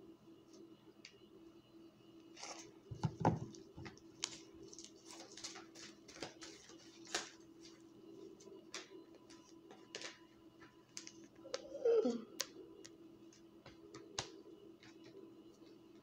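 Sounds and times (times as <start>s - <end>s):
cards being shuffled: 4.2s - 7.8s.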